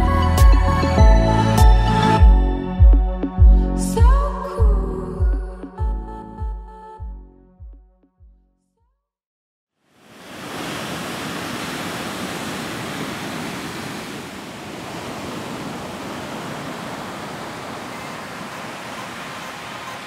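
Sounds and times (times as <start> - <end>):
ocean surf breaking: 10.0 - 20.0.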